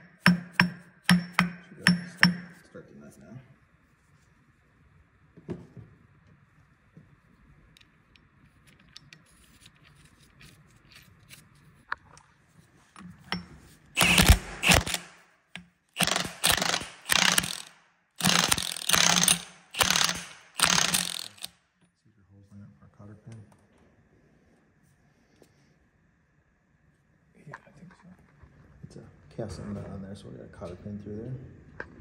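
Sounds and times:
ratchet wrench clicking: 0:14.0 - 0:15.1, 0:16.0 - 0:21.5.

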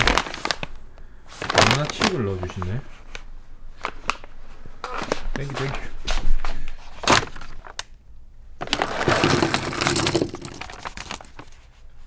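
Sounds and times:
package contents rustling: 0:01.4 - 0:04.4, 0:08.6 - 0:11.7.

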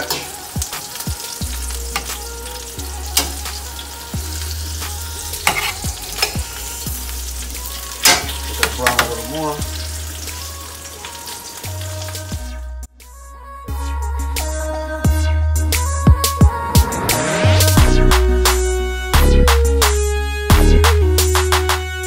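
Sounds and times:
chicken sizzling in hot oil: 0:00.0 - 0:12.6
metal tongs clicking on pan: 0:03.2 - 0:03.5, 0:05.4 - 0:06.4, 0:08.0 - 0:09.2.

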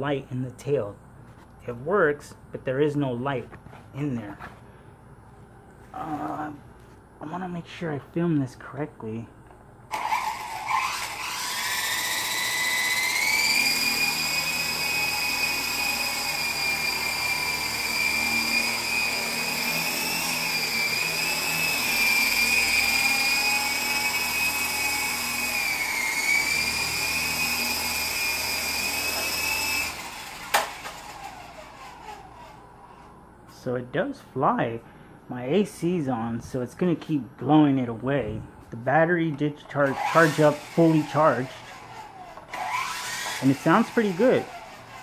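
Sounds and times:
toy helicopter rotor whine: 0:09.9 - 0:33.1, 0:39.8 - 0:45.0.

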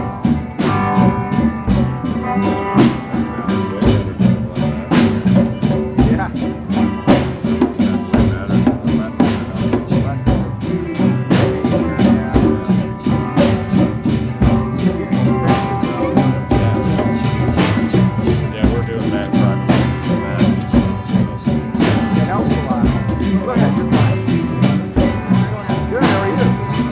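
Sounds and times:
hand drums: 0:00.0 - 0:26.9
live rock band playing: 0:00.0 - 0:26.9.

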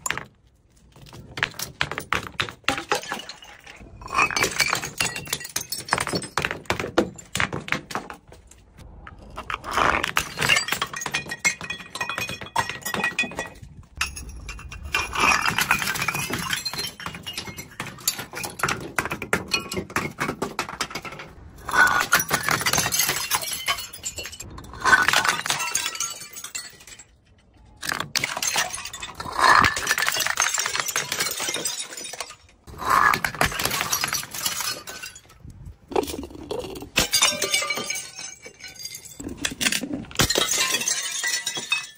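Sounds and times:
glass bottles smashing on concrete: 0:00.0 - 0:08.1, 0:09.7 - 0:41.9
glass shards tinkling: 0:21.7 - 0:27.4, 0:37.0 - 0:41.9.

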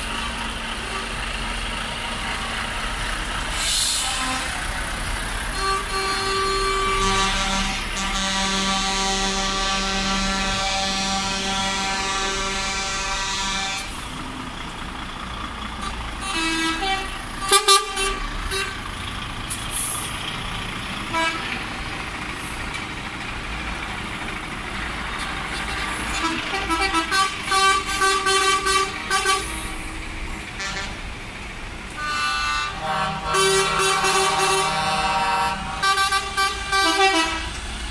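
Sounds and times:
lorry diesel engines: 0:00.0 - 0:37.9
air horns blasting: 0:03.6 - 0:04.6, 0:05.5 - 0:14.0, 0:15.8 - 0:18.8, 0:21.1 - 0:21.6, 0:25.5 - 0:29.9, 0:30.6 - 0:31.1, 0:32.0 - 0:37.6.

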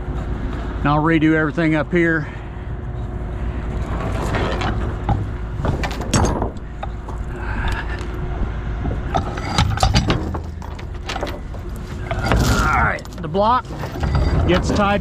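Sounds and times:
engine idling: 0:00.0 - 0:15.0
metal chain clinks and scrapes: 0:09.1 - 0:15.0.

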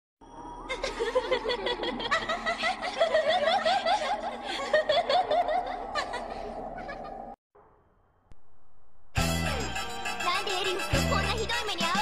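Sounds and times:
high-pitched laughter: 0:00.7 - 0:07.4.

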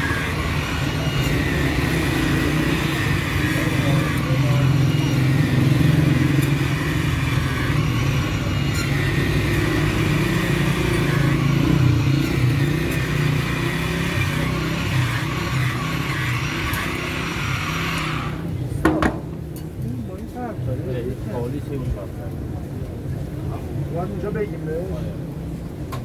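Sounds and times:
motor drone with low hum: 0:00.0 - 0:19.4.

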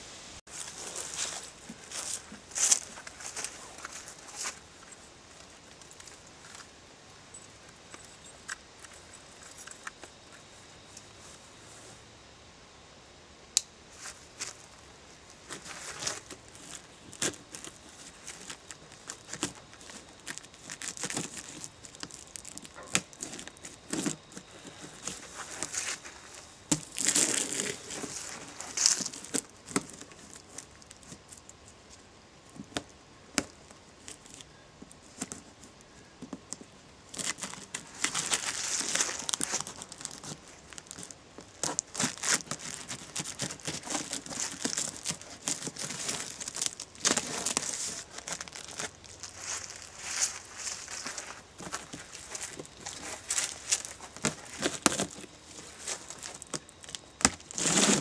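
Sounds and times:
plastic wrap crinkling and tearing: 0:15.4 - 0:31.5, 0:37.1 - 0:58.0.

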